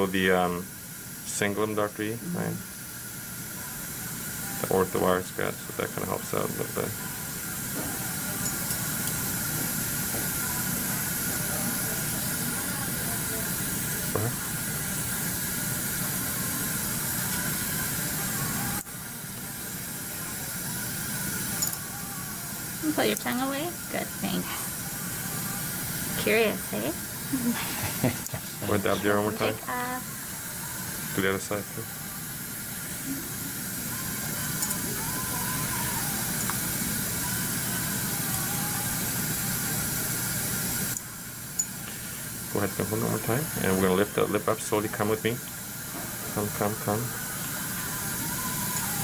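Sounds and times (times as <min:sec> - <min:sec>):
steady hiss: 0:00.0 - 0:49.0.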